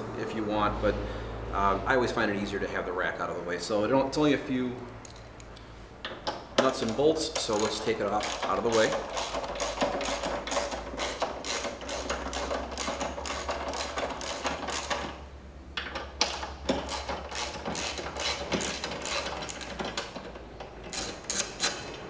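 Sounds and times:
socket ratchet clicking: 6.6s - 15.2s, 15.8s - 22.0s.

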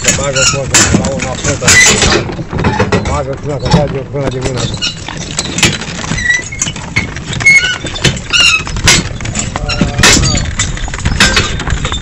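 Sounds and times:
horse hooves clopping: 0.0s - 12.0s.

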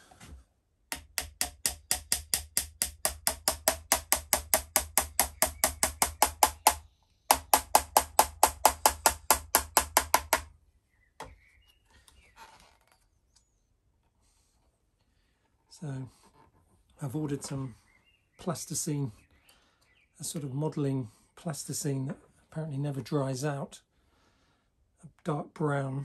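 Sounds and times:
small hammer tapping pin into wood: 0.9s - 10.5s.

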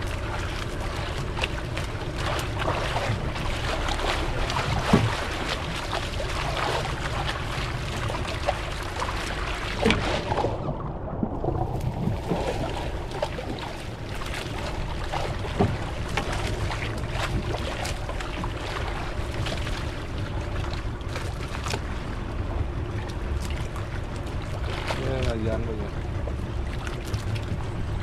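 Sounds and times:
boat engine rumble: 0.0s - 28.0s
water washing: 0.0s - 28.0s
wind on microphone: 9.6s - 18.7s.

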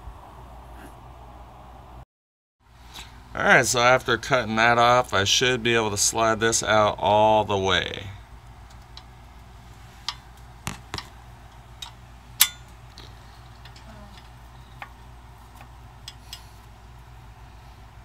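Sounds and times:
low steady hum: 0.0s - 2.0s, 2.7s - 18.0s
light metallic clicks and taps: 10.0s - 16.5s
ringing metal clink: 12.4s - 12.8s.

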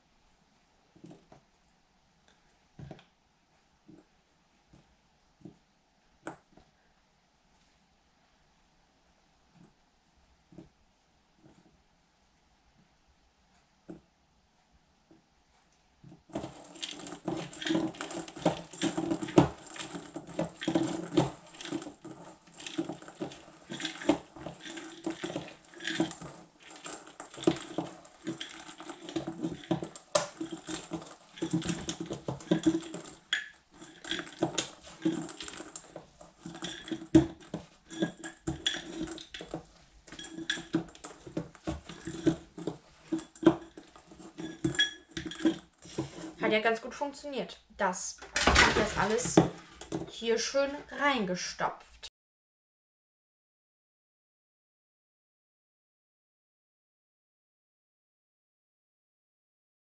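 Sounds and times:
hands kneading sticky filling: 16.2s - 46.6s
knocks and clinks on metal bowl: 16.4s - 46.4s.

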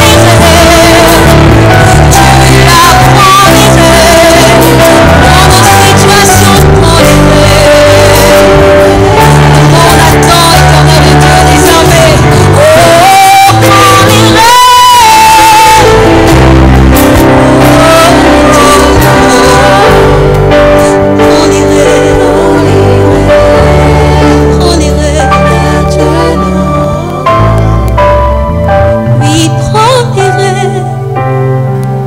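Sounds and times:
woman singing worship song: 0.0s - 8.6s, 9.3s - 15.9s, 21.2s - 27.2s, 29.2s - 31.1s
sustained backing chords: 0.0s - 32.0s.

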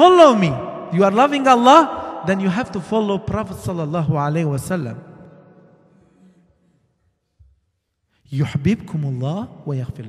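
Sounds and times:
man's voice: 0.0s - 5.0s, 8.3s - 10.0s.

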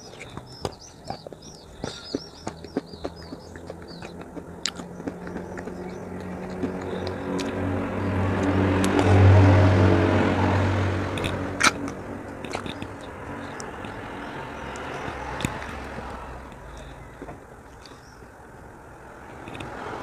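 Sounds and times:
eating wet chalk paste: 0.0s - 7.7s, 11.2s - 14.0s
passing vehicle engine hum: 0.0s - 20.0s.

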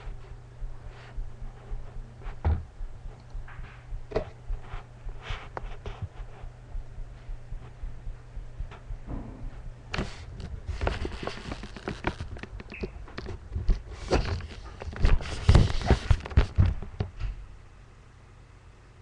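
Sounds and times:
low steady hum: 0.0s - 19.0s
knocks and clattering thumps: 2.3s - 4.4s, 8.6s - 17.3s.

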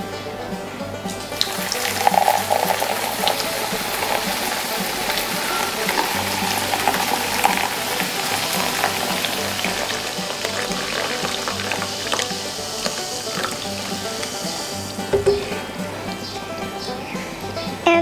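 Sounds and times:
soda pouring and fizzing: 1.4s - 15.1s.

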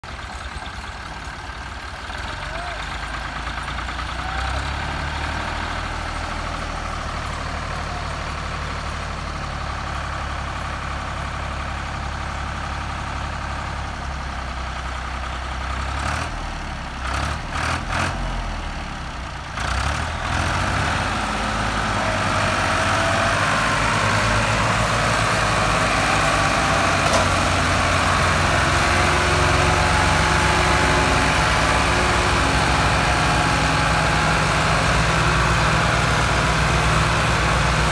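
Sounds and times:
diesel tractor engines running: 0.0s - 37.9s.

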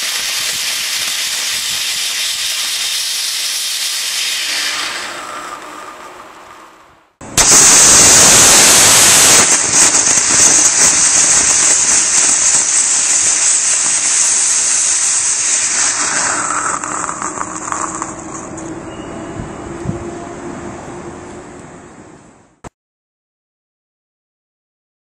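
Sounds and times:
rocket motor hissing and crackling: 0.0s - 18.7s.

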